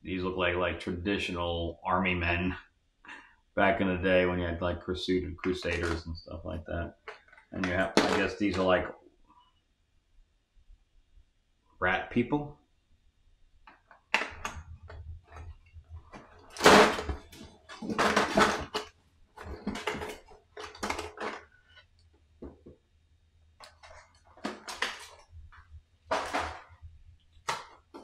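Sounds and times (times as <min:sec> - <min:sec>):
plastic figures and packaging rustling: 0:05.4 - 0:08.8, 0:13.7 - 0:22.9, 0:23.6 - 0:28.0.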